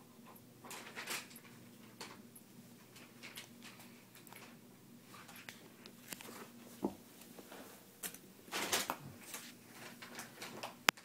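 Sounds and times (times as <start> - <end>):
soft taps and rustles of foil: 2.8 - 11.0.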